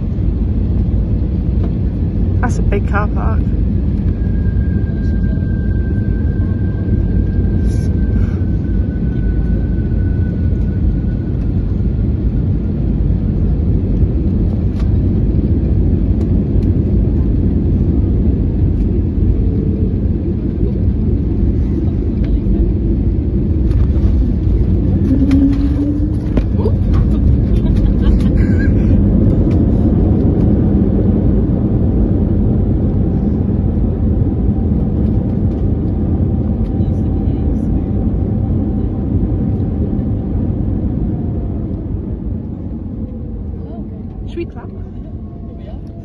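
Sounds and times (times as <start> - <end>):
aircraft engine and airflow rumble: 0.0 - 46.0
faint high whine: 3.5 - 13.8.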